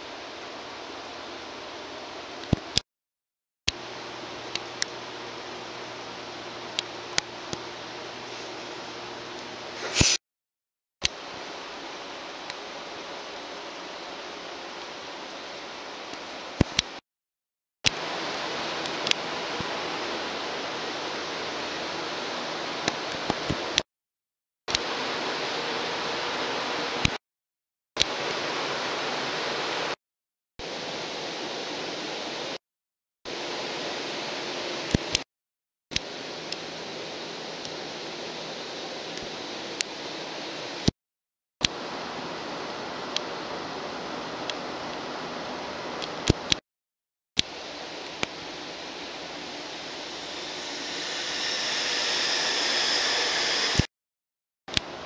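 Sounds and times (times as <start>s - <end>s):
electric train equipment hissing: 49.4s - 53.9s.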